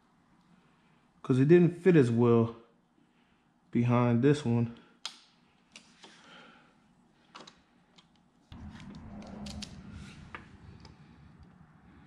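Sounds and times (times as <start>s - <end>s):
low rumbling handling noise: 8.5s - 12.0s.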